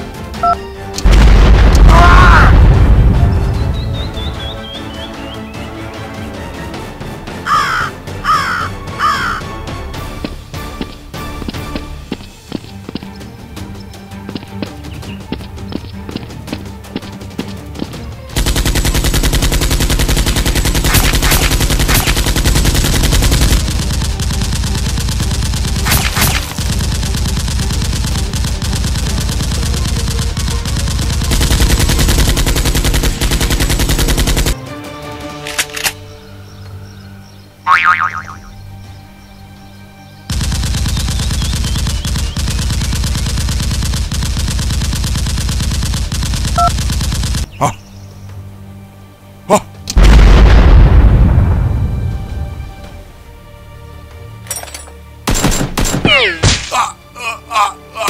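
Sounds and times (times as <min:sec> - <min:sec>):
rapid automatic gunfire: 0:18.4 - 0:34.6, 0:40.3 - 0:47.5.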